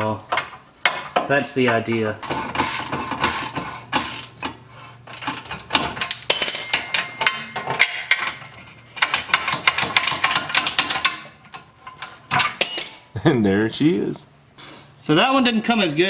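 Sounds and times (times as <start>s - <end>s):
hand ratchet clicking: 2.6s - 4.5s, 5.1s - 5.6s.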